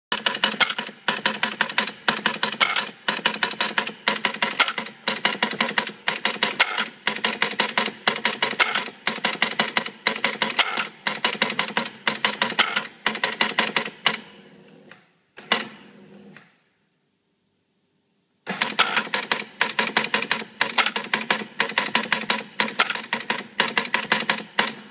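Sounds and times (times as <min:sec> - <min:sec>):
relays and switches clicking: 0:00.1 - 0:15.8, 0:18.5 - 0:24.9.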